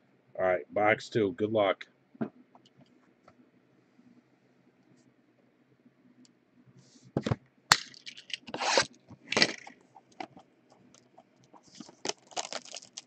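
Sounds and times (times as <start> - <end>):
plastic shrink-wrap crinkling and tearing: 11.7 - 13.0.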